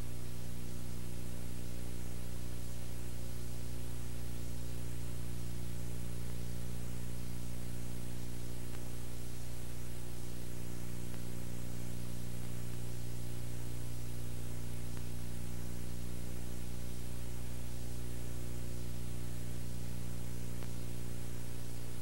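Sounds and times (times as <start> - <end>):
electrical hum: 0.0 - 22.0.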